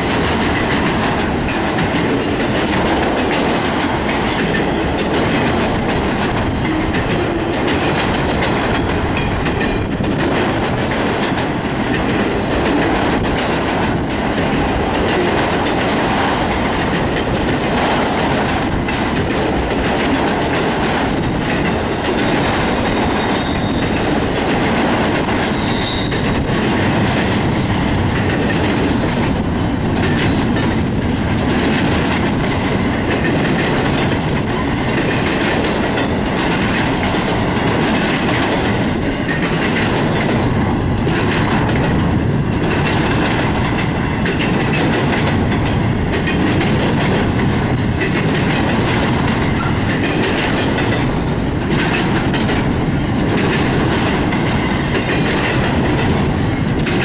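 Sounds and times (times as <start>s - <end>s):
train wheels rumbling on rails: 0.0s - 57.0s
wheels clicking over rail joints: 0.0s - 57.0s.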